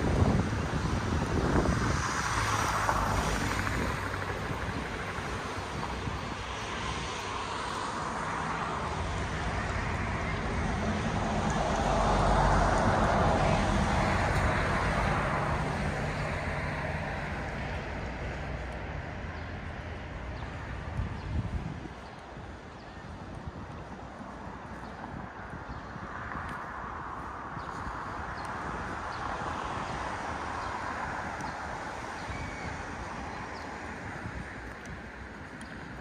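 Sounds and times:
steady outdoor hiss: 0.0 - 36.0.

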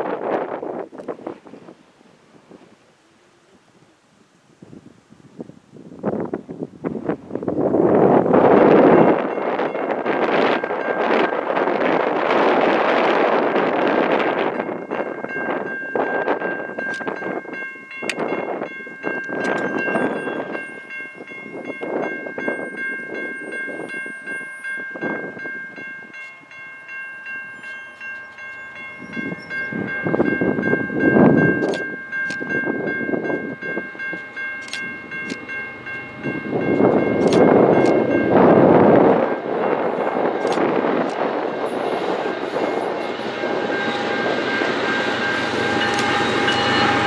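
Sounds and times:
wind gusts on microphone: 0.0 - 26.2, 28.8 - 47.0
electronic crossing bell ringing: 8.7 - 13.3, 14.1 - 47.0.

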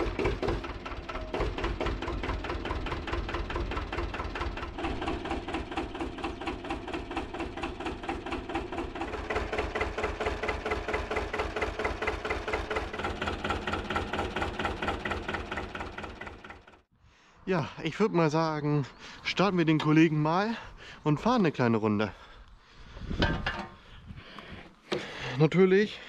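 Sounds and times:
tractor diesel engine running: 0.0 - 16.9.

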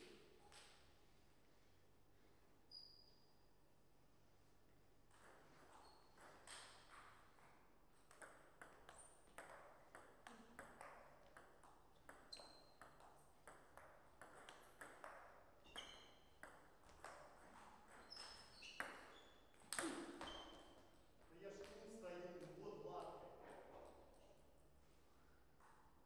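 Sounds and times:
short high squeaks: 2.7 - 3.4.

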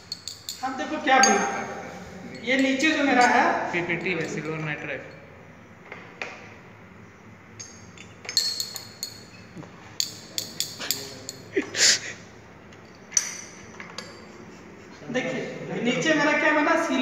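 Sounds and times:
glassware clinking: 0.0 - 5.3, 7.6 - 11.7, 12.7 - 14.5.

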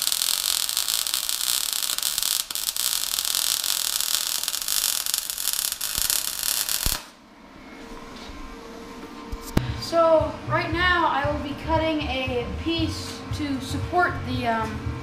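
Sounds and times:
welding arc hissing and crackling: 0.0 - 7.2.

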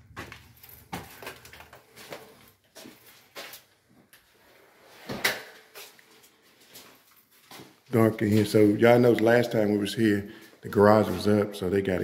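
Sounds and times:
footsteps knocking and clicking: 0.0 - 3.0.

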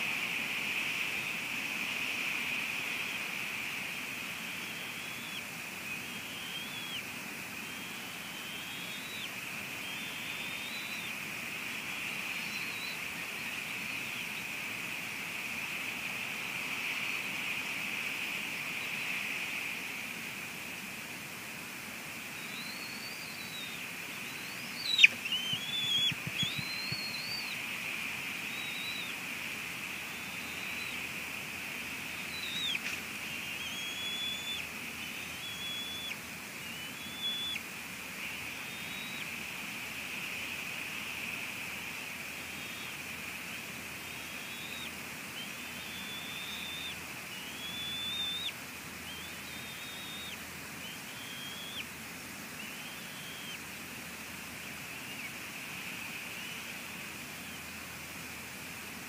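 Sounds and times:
steady high hiss: 0.0 - 59.0
eagle whistled calls: 4.3 - 14.5, 22.3 - 29.2, 29.8 - 37.6, 38.2 - 39.4, 42.4 - 53.6, 54.8 - 57.6.

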